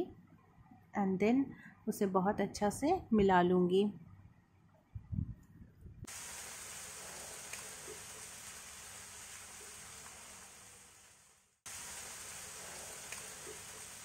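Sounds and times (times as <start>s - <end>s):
vegetables sizzling in oil: 6.1s - 14.0s.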